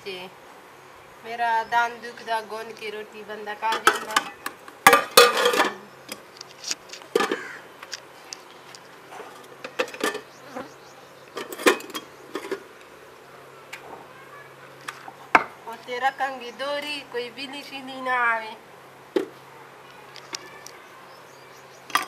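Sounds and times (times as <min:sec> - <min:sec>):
steel pots and lids clanking: 0:03.7 - 0:06.2, 0:07.2 - 0:07.4, 0:09.3 - 0:10.3, 0:11.4 - 0:12.7.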